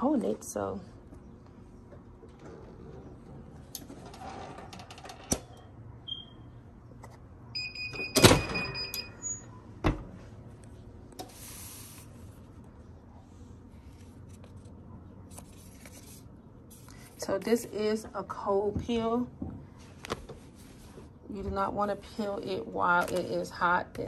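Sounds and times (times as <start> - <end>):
electronic beep: 6.1 - 6.4.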